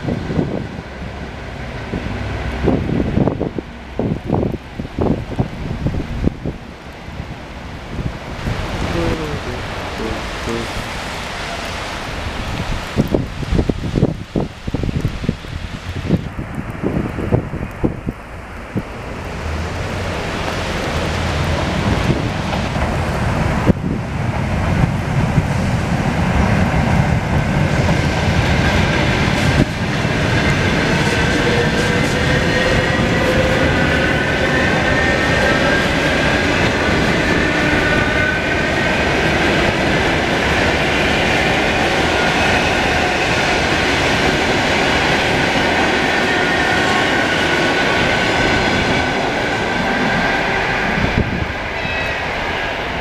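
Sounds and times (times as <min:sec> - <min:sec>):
train whine: 0:00.0 - 0:12.6, 0:18.2 - 0:53.0
train wheels rumbling on rail: 0:00.0 - 0:53.0
wheels clickety-clack: 0:19.1 - 0:34.6.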